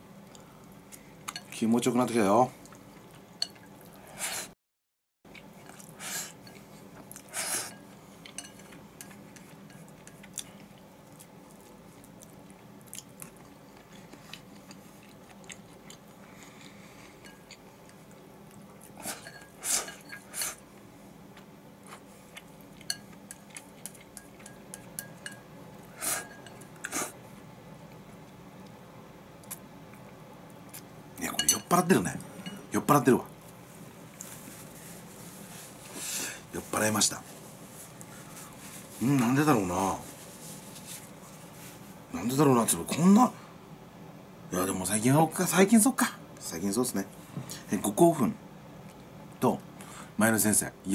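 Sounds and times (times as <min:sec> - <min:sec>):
chewing: 0:08.2 - 0:19.3.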